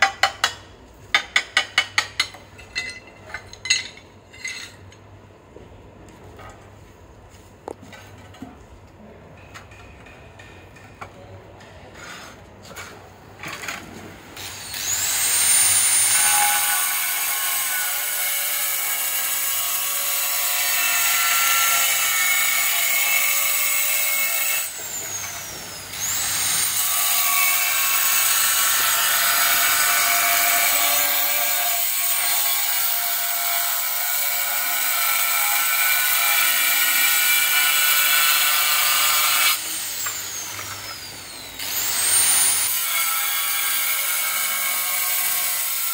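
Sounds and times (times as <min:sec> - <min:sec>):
angle grinder cutting tile: 0:14.4 - 0:45.9.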